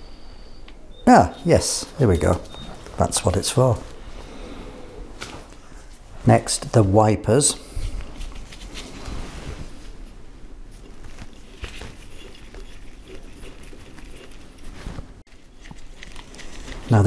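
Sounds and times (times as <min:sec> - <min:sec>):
handling sounds: 0:01.1 - 0:06.1.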